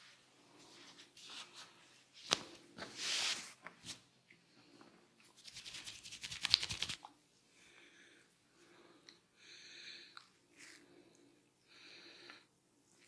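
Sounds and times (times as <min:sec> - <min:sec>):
fingers scratching through hair: 0:05.4 - 0:07.1.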